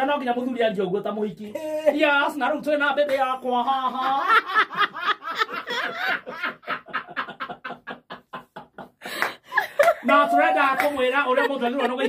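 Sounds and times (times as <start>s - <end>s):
man and woman laughing: 3.7s - 12.0s.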